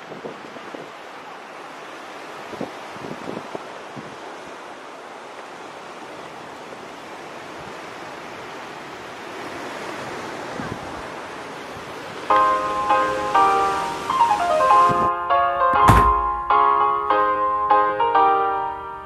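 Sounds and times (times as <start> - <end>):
wind noise on microphone: 0.0 - 1.1, 2.4 - 4.3, 9.4 - 12.2.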